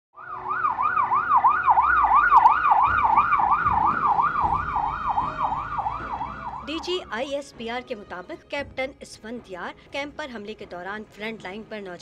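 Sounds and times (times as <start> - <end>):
ambulance siren yelping: 0.2 - 7.1.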